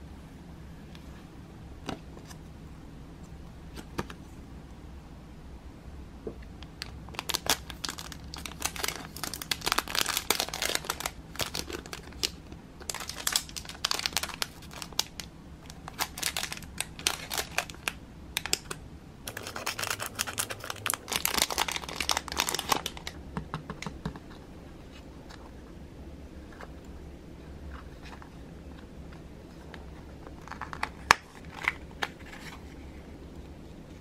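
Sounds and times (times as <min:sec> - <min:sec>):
plastic bag crinkling: 0:06.8 - 0:18.7, 0:19.3 - 0:23.2.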